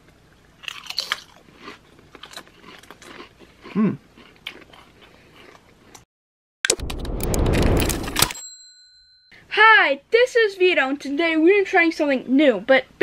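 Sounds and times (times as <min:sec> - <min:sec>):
crisps crunching: 0:00.6 - 0:06.0
person murmuring hmm: 0:03.7 - 0:04.0.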